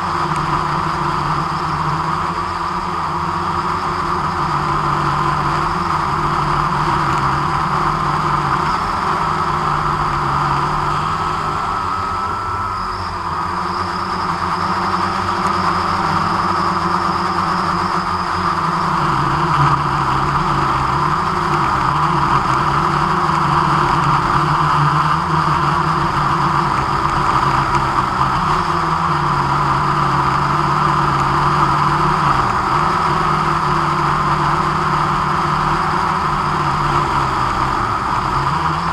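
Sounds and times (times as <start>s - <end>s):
drone propellers humming: 0.0s - 38.9s.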